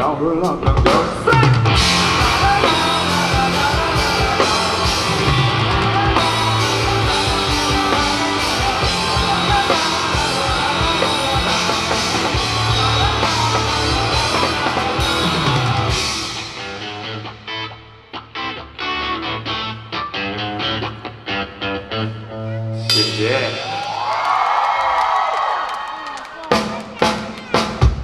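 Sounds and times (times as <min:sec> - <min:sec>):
drum kit: 0:00.0 - 0:17.6, 0:22.8 - 0:24.3, 0:26.5 - 0:28.0
guitars: 0:00.0 - 0:24.0
bass guitar: 0:00.0 - 0:24.1.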